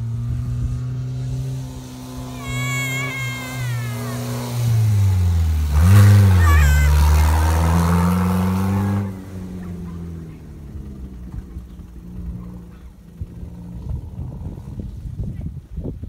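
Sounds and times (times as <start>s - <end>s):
uneven engine rumble: 0.0s - 16.0s
car engine revving: 4.2s - 12.3s.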